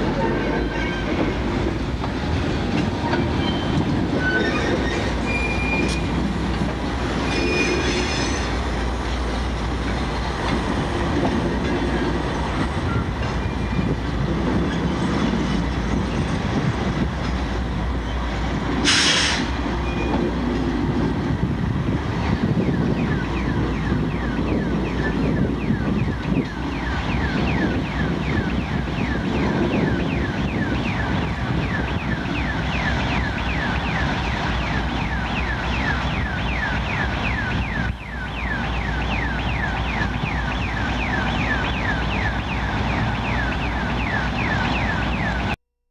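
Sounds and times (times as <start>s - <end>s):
freight train rumbling past: 0.0s - 45.6s
crossing warning bell ringing: 22.4s - 45.6s.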